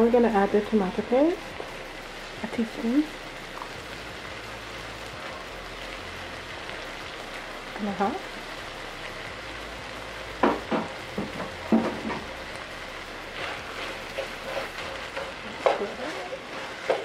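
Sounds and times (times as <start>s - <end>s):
food sizzling in a skillet: 0.0s - 17.0s
spoon scraping a pan: 13.4s - 17.0s.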